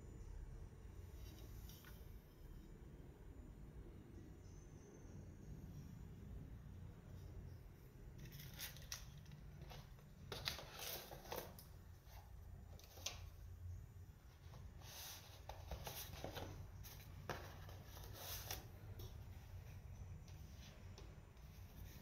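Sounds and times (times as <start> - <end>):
paper boxes rustling and scraping: 8.2 - 13.3, 14.3 - 22.0.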